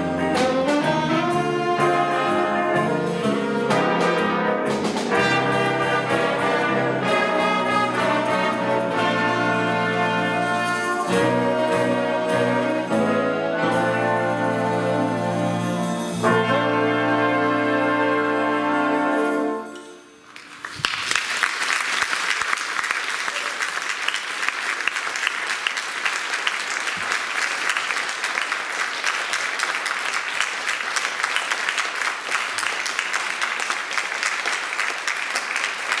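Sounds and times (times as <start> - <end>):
big band final chord: 0.0 - 19.7
audience applause: 20.4 - 36.0.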